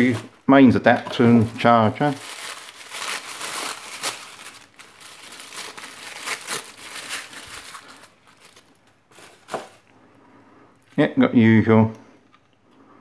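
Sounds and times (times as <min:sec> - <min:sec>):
plastic wrapping crinkling: 0:00.0 - 0:09.9.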